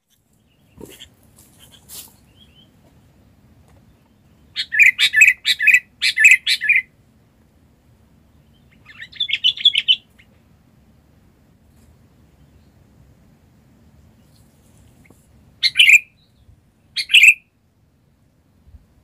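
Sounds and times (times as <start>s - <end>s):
bird chirping: 0.0s - 6.9s, 8.2s - 10.4s, 14.1s - 17.5s.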